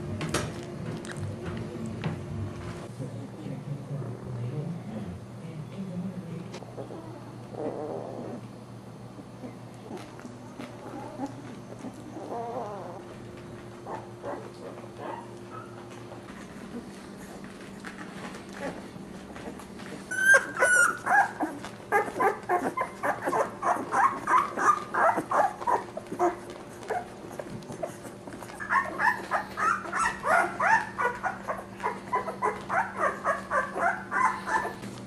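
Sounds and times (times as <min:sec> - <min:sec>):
puppies squeaking and whimpering: 0:10.9 - 0:13.1, 0:19.4 - 0:34.9.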